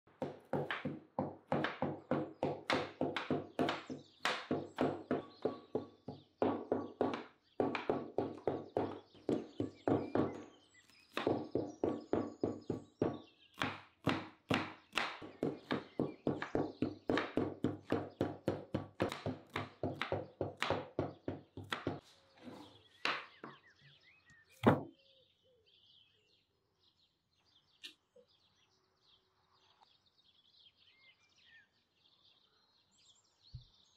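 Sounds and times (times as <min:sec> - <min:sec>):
knife chopping on wooden board: 0:00.2 - 0:22.0, 0:24.6 - 0:24.9
faint bird chirps: 0:22.2 - 0:33.9
knock: 0:24.6 - 0:24.9.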